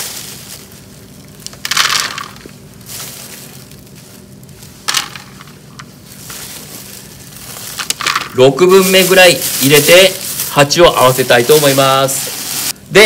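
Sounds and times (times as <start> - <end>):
soil crunching and rustling: 0.0 - 12.8.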